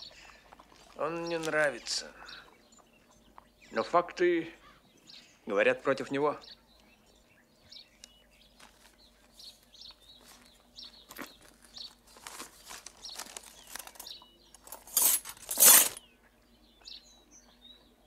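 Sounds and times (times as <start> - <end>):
small birds chirping: 0.0 - 18.0
paper wrapping rustling: 11.1 - 16.0
metal lockpicks clinking: 13.8 - 16.0.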